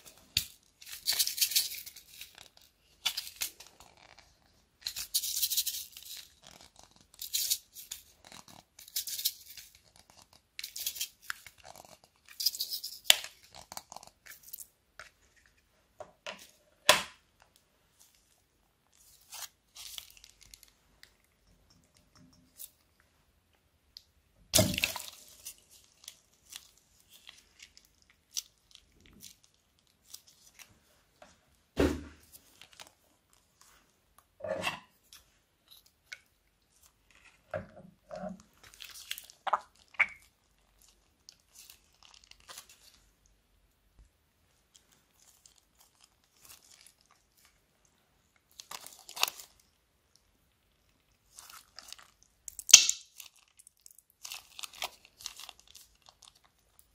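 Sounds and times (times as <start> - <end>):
beads rattling in container: 0.8 - 2.3
plastic bags crinkling: 38.4 - 43.1, 44.7 - 47.6, 48.4 - 49.7, 51.2 - 56.9.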